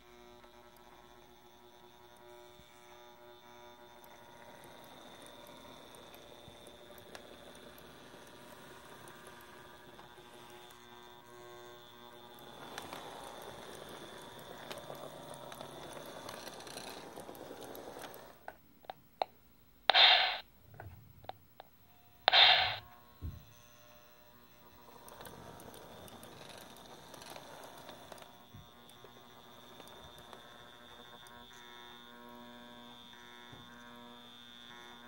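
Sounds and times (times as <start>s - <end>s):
clicks: 19.2s - 20.4s, 22.3s - 22.8s
short loud bursts: 19.9s - 20.4s, 22.3s - 22.8s.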